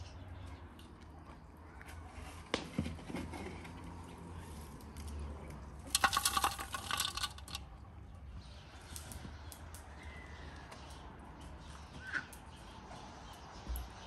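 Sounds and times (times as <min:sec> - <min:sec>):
embers clattering into metal basin: 0:05.8 - 0:08.0
metal shovel scraping embers: 0:05.9 - 0:07.6.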